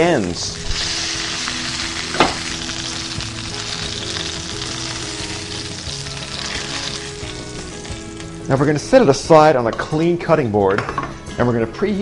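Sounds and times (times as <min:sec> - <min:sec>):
meat sizzling in oil: 0:00.0 - 0:09.2.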